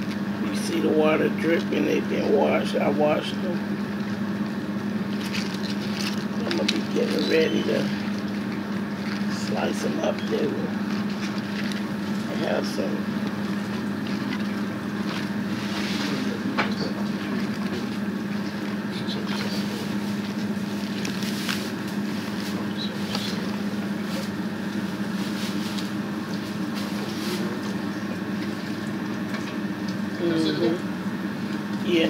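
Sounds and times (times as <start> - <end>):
motor humming with hiss: 0.0 - 32.0
wet leaves rustling: 17.3 - 29.0.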